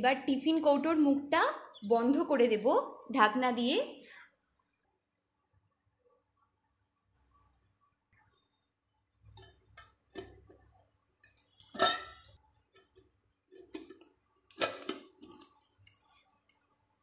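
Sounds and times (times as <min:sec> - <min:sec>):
sharp metal lid clanks: 0:11.6 - 0:12.4.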